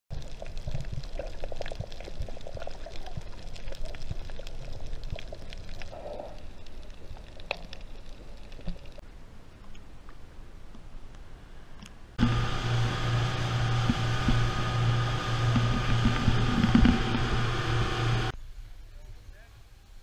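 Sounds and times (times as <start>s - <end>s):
sharp clicks and crackles: 0.1s - 9.0s, 11.8s - 18.4s
underwater gurgling and sloshing: 0.1s - 9.0s, 12.2s - 18.3s.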